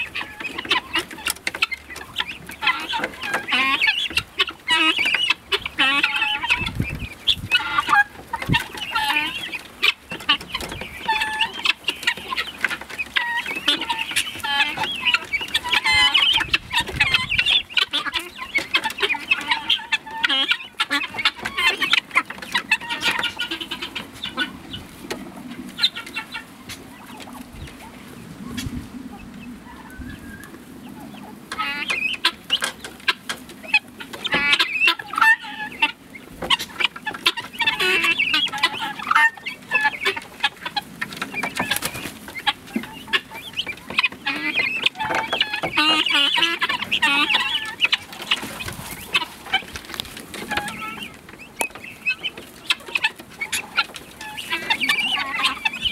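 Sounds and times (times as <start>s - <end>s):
guineafowl flock calling: 0.0s - 55.9s.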